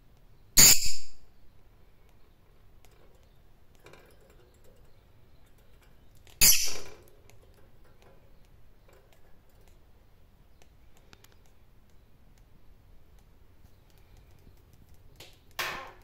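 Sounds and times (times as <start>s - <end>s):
lovebird squawk: 0.6s - 1.2s, 6.4s - 6.9s
faint light clicks: 10.5s - 15.6s.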